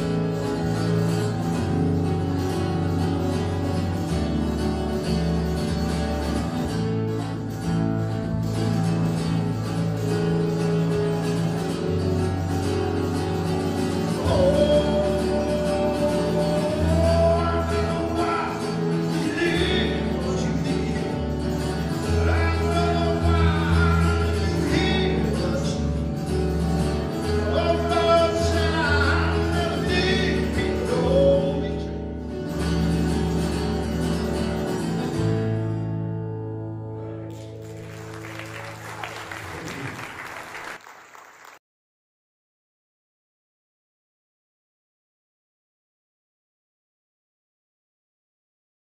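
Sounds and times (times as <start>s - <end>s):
strummed acoustic guitar: 0.0s - 38.2s
man singing: 13.5s - 32.2s
audience applause: 37.3s - 41.6s.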